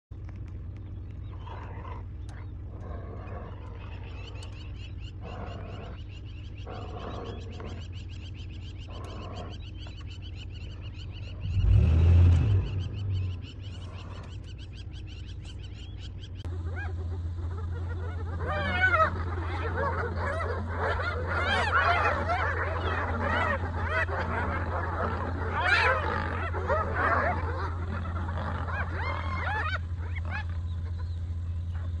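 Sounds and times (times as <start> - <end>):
low steady hum: 0.1 - 32.0
hyenas calling: 0.6 - 32.0
rapid chirping: 0.6 - 32.0.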